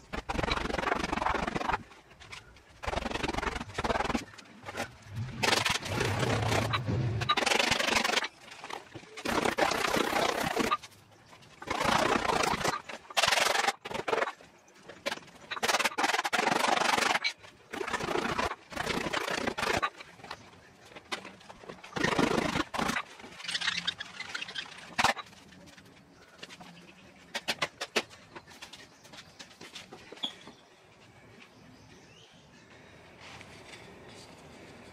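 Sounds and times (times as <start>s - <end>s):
leather glove rubbing and scraping: 0.0s - 15.6s.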